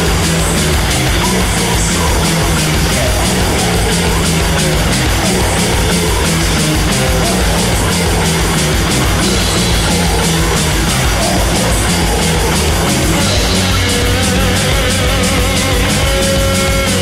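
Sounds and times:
heavy metal music: 0.0s - 17.0s.

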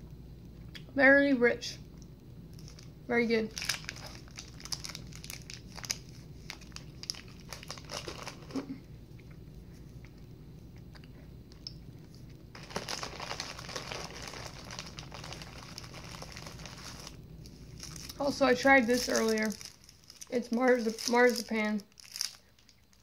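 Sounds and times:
snack packaging crinkling: 2.5s - 2.9s, 3.5s - 9.4s, 11.5s - 23.0s.

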